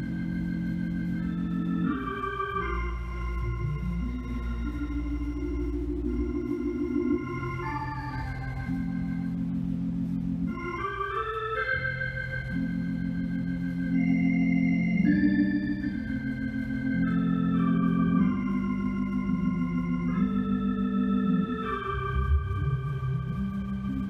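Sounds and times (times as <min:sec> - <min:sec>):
organ playing slow chords: 0:00.0 - 0:24.0.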